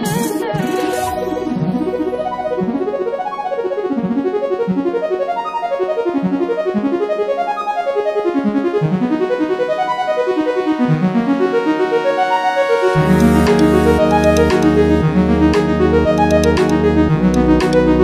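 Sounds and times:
keyboard playing quick runs: 12.8s - 15.3s.

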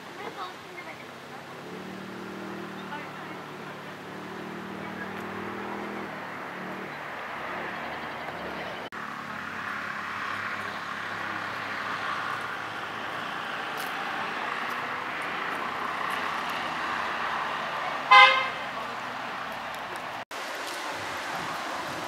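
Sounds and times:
car horn toot: 18.1s - 18.6s
steady rushing noise: 20.1s - 22.0s.

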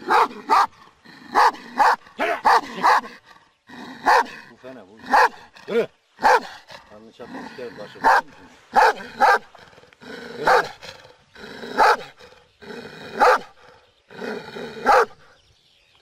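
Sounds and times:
dog barking: 0.0s - 3.1s, 4.0s - 4.4s, 5.1s - 5.5s, 6.2s - 6.6s, 8.0s - 9.5s, 10.4s - 10.8s, 11.8s - 12.1s, 13.2s - 13.5s, 14.8s - 15.2s.

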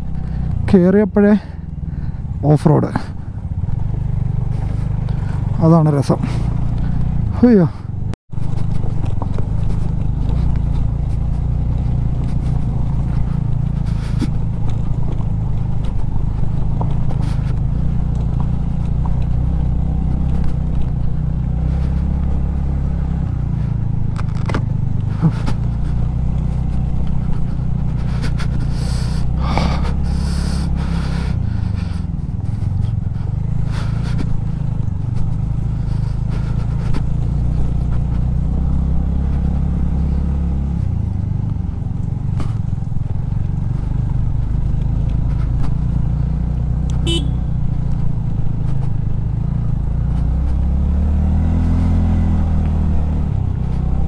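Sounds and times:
motorcycle engine running: 0.0s - 54.0s
suspension clatter: 0.0s - 54.0s
stones knocking and scraping: 8.4s - 19.6s, 24.0s - 30.0s.

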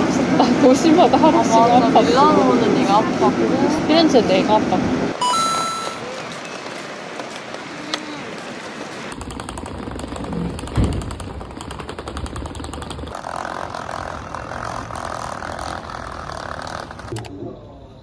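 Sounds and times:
street hum: 0.0s - 18.0s
suitcase wheels clattering on paving: 9.1s - 17.1s.

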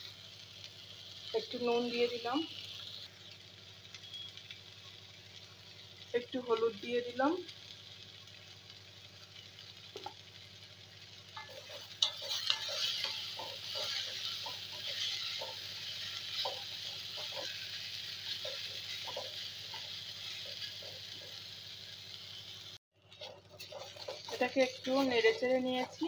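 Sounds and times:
vegetables sizzling in hot oil: 0.0s - 26.0s
spatula scraping metal pan: 11.4s - 21.4s, 23.1s - 26.0s.

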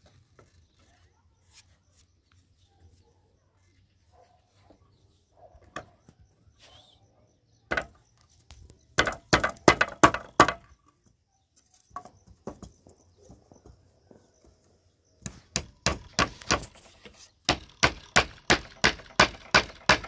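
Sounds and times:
hammer striking wooden slats: 9.0s - 10.7s, 15.2s - 16.9s, 17.5s - 20.0s.

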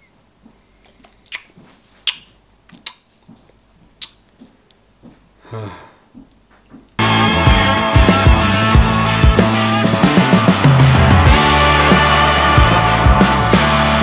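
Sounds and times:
wet eating mouthfuls: 0.8s - 3.4s, 4.0s - 4.6s
short low vocal sound: 5.4s - 6.0s.

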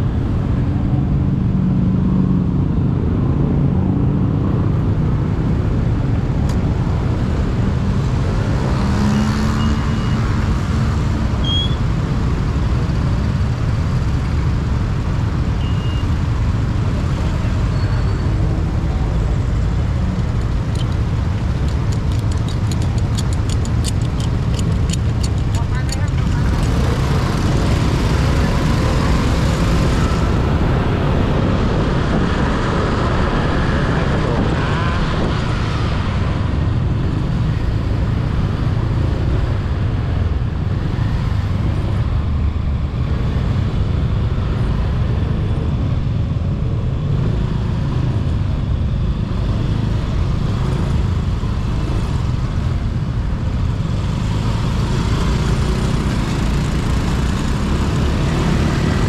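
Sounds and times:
passing cars and motorbikes: 0.0s - 59.0s
scooter engine rumble: 19.3s - 28.6s.

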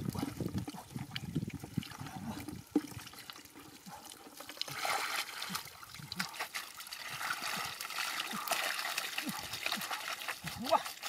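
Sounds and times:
water trickling: 0.0s - 11.0s
wet mud squelching: 3.9s - 11.0s
basket sloshing through mud: 4.6s - 11.0s.

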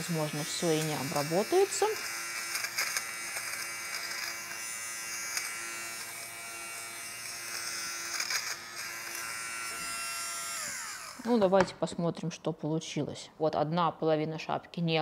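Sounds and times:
fabric shaver buzzing: 0.0s - 11.6s.

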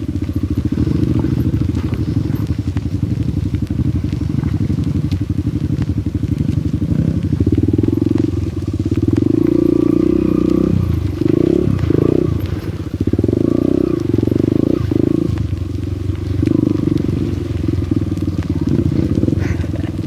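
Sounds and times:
motorbike engine revving: 0.0s - 20.0s.

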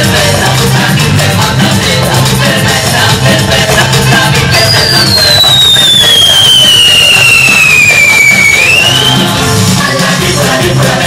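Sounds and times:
band music: 0.0s - 10.5s
high whistling tone sliding in pitch: 4.3s - 9.4s.

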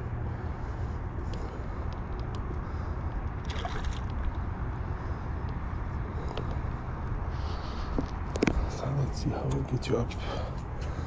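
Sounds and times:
steady low rumble: 0.0s - 11.0s
fish splashing at water surface: 3.4s - 4.3s.

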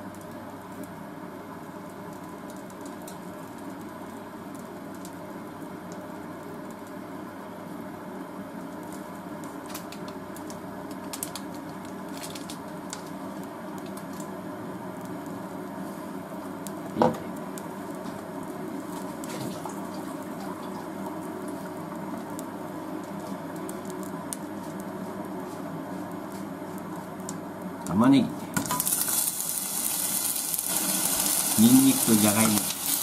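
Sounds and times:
fat sizzling in a saucepan: 12.0s - 27.6s, 28.5s - 33.0s.

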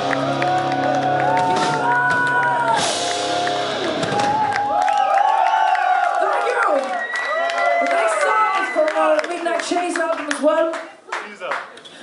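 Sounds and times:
rock band final chord: 0.0s - 4.6s
crowd cheering and whooping: 0.0s - 9.2s.

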